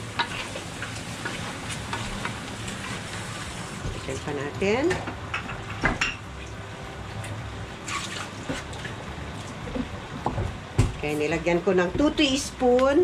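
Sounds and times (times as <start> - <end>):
chicken sizzling and bubbling: 0.0 - 4.2, 5.0 - 10.4.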